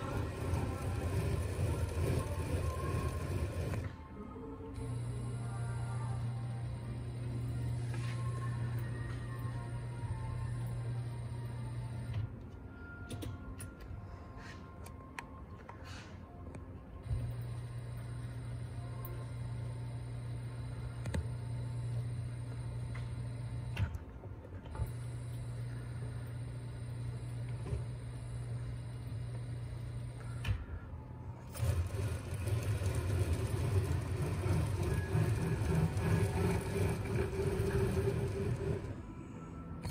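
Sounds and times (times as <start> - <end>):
electric motor humming: 0.0 - 4.0, 31.4 - 39.9.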